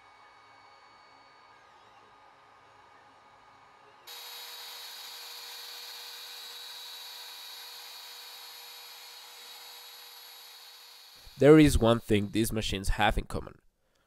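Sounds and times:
router spindle milling metal: 4.1s - 11.6s
three d printer whining: 4.1s - 12.4s.

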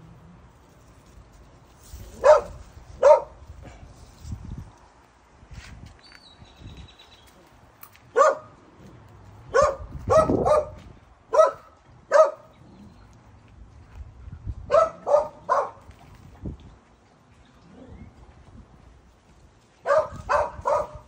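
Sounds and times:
dog barking: 2.2s - 3.3s, 8.1s - 8.5s, 9.5s - 12.5s, 14.7s - 15.8s, 19.8s - 21.0s.

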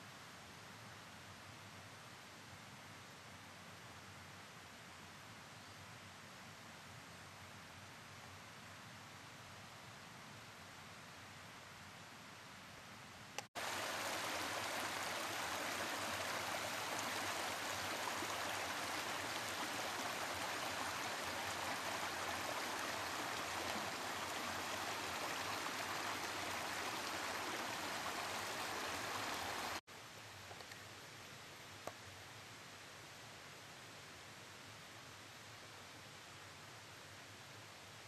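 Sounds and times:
brook running over stones: 13.6s - 29.8s.

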